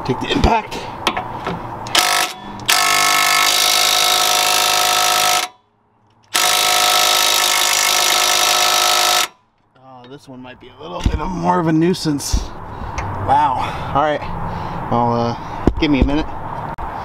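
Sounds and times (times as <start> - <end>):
impact wrench running: 1.9 - 5.5, 6.3 - 9.3.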